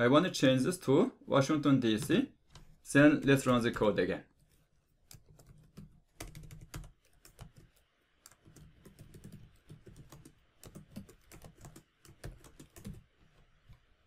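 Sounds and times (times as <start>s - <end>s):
computer keyboard typing: 5.0s - 13.2s.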